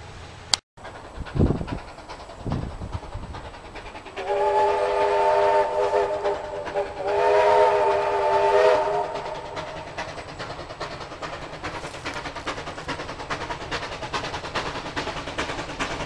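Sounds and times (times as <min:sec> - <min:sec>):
locomotive horn blasts: 0:04.2 - 0:09.2.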